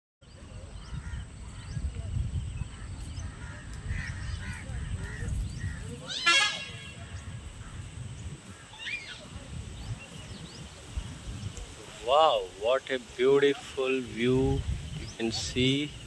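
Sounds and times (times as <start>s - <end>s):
loud harsh animal call: 6.0s - 7.3s.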